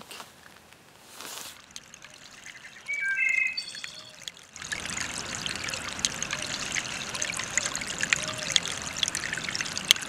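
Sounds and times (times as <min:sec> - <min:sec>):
running water trickling: 0:01.1 - 0:10.0
short high peeps: 0:02.9 - 0:04.1.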